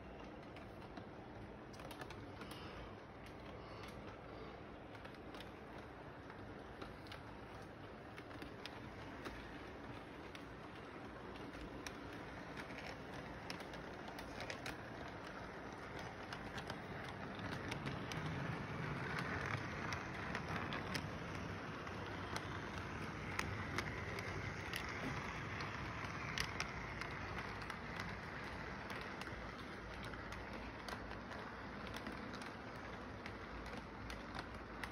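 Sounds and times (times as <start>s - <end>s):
light clicks over rail joints: 0.0s - 34.9s
model train motor whir: 1.7s - 34.9s.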